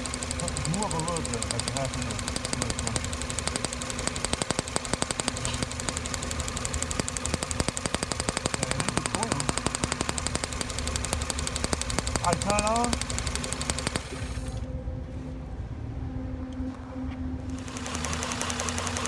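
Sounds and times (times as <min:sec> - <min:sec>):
car engine running: 0:00.0 - 0:14.7.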